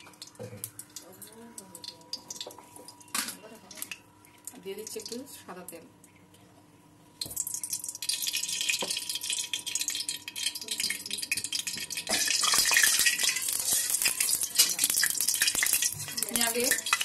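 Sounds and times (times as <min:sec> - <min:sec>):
oil sizzling and crackling: 0:00.0 - 0:06.1, 0:07.2 - 0:17.0
metal spatula scraping pan: 0:12.8 - 0:14.8.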